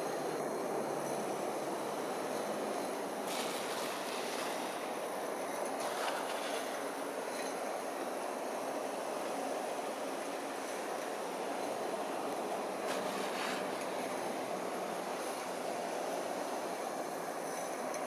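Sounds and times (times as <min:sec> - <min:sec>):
model tram rolling on track: 0:00.0 - 0:18.0.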